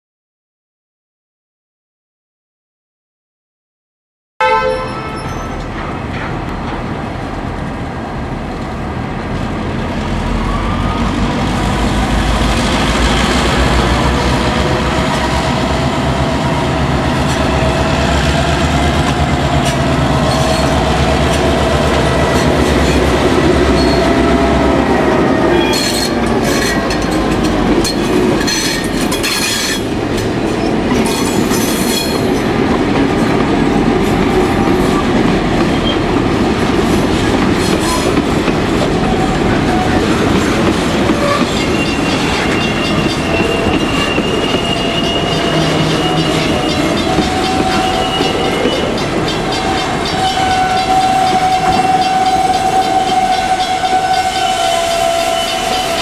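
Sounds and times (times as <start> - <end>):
locomotive engine rumble: 5.5 - 29.2, 29.8 - 56.0
wheel clicks and squeals: 41.1 - 56.0.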